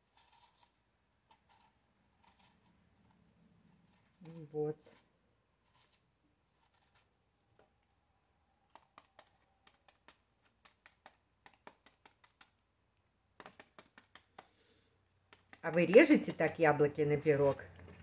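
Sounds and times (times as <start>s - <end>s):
knife cutting apple clicks: 8.7s - 12.6s, 15.3s - 16.8s.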